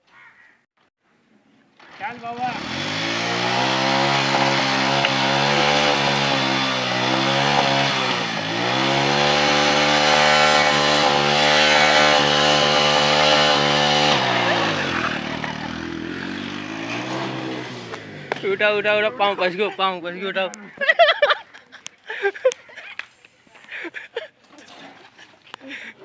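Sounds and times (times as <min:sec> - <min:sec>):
motorcycle engine revving: 0:01.8 - 0:19.2.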